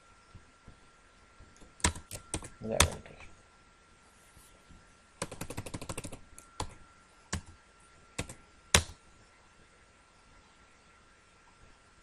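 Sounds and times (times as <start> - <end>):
computer keyboard typing: 1.6 - 3.0, 5.2 - 7.6, 8.2 - 9.0.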